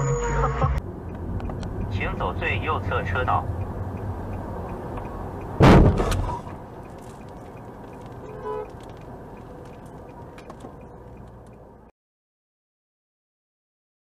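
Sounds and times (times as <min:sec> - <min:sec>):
car road noise: 0:00.0 - 0:11.9
loud sharp bang: 0:05.6 - 0:06.5.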